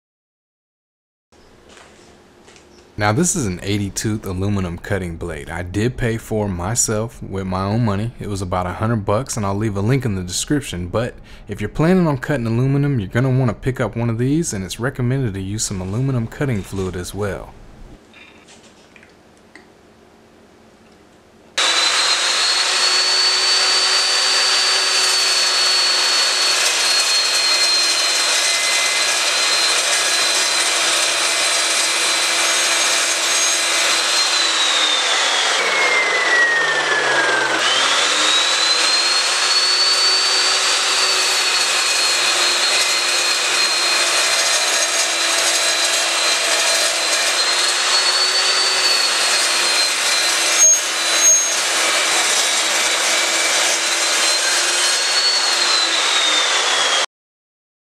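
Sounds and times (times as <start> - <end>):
loud high saw whine: 21.6 - 57.1
metal chop saw cutting aluminium: 21.6 - 57.1.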